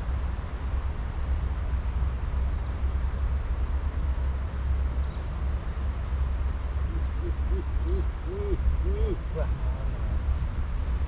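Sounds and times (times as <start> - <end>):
wind rumbling on microphone: 0.0 - 11.0
short hooting calls: 6.8 - 10.0.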